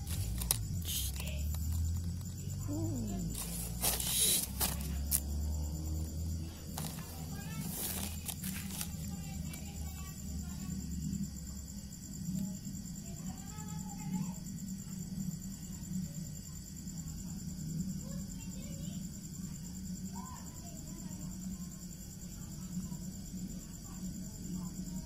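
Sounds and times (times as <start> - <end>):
low steady hum: 0.0 - 18.2
crickets chirping: 0.0 - 25.0.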